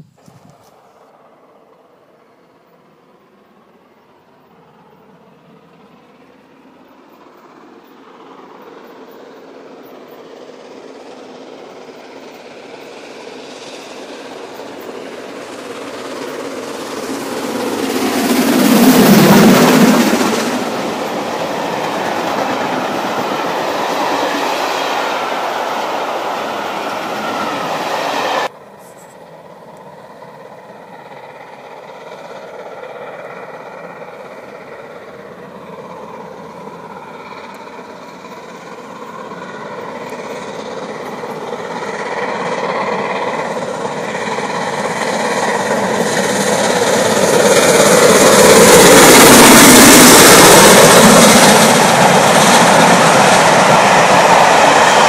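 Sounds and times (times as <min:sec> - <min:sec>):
train rumble: 0:00.0 - 0:55.0.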